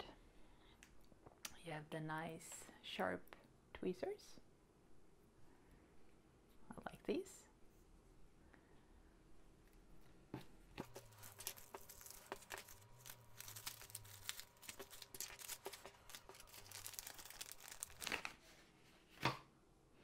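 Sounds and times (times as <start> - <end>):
plastic wrap crinkling and tearing: 10.8 - 18.4.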